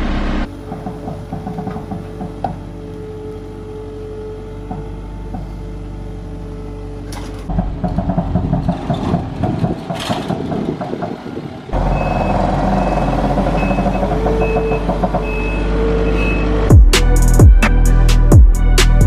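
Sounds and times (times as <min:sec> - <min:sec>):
diesel engine running: 0:00.0 - 0:19.0
reversing alarm beeping: 0:11.8 - 0:16.7.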